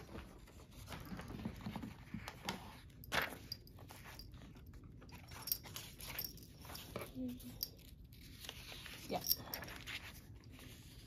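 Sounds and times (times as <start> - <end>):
paper tapping and rustling: 0.0 - 4.0.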